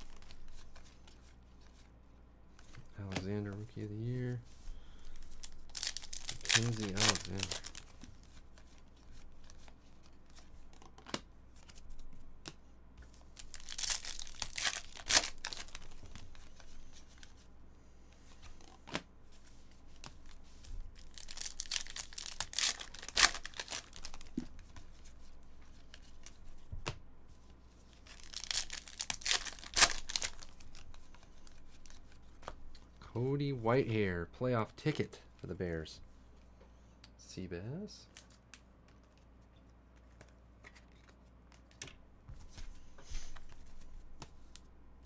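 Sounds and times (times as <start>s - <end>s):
foil wrappers crinkling and tearing: 5.0s - 8.0s, 13.4s - 16.4s, 21.0s - 24.4s, 28.1s - 32.0s.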